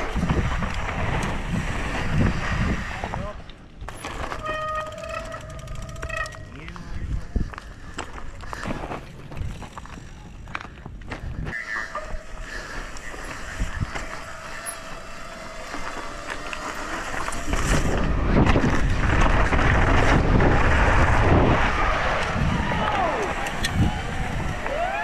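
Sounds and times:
wind on helmet camera: 0.0s - 3.5s, 17.3s - 25.0s
tyre noise on dirt: 0.0s - 25.0s
bike clicks and knocks: 3.6s - 6.9s, 7.5s - 11.5s.

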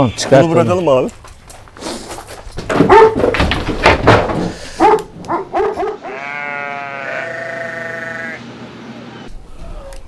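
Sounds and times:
large dogs barking: 2.8s - 3.3s, 4.8s - 6.2s.

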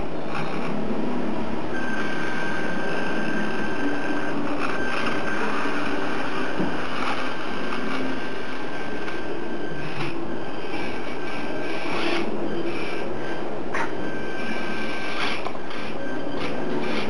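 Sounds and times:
toy motor gearbox whirring: 0.0s - 0.8s, 4.2s - 8.2s, 9.8s - 13.1s, 13.7s - 17.0s
high motor whine: 0.0s - 17.0s.

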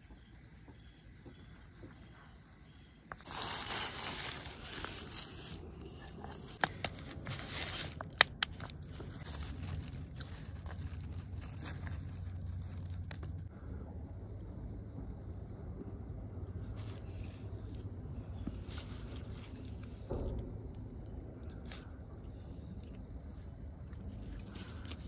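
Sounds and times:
newspaper rustling and crinkling: 3.2s - 13.5s
peeling an egg: 3.2s - 13.5s.

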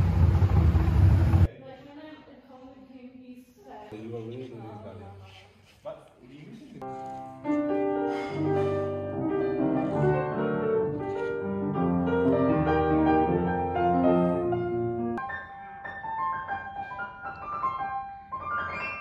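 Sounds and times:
piano playing chords and melody: 6.8s - 19.0s.

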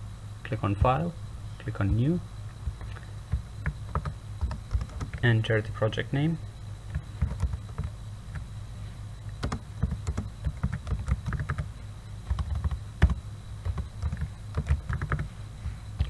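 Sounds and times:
keyboard typing: 2.7s - 5.3s, 6.9s - 8.5s, 9.4s - 11.7s, 12.3s - 15.3s.

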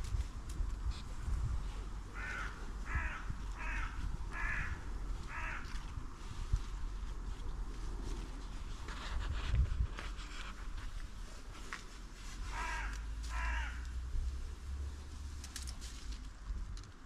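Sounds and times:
crow cawing: 2.1s - 5.8s, 12.5s - 14.0s.

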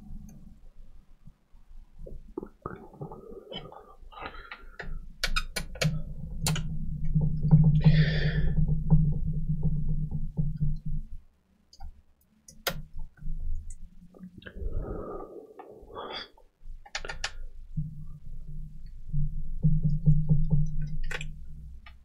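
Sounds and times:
steady low hum: 12.6s - 22.0s.

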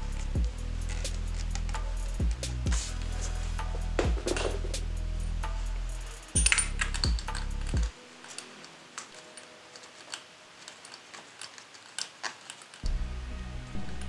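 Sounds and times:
background music: 0.0s - 12.2s, 12.8s - 14.0s
small clicks and ticks: 5.9s - 12.9s.

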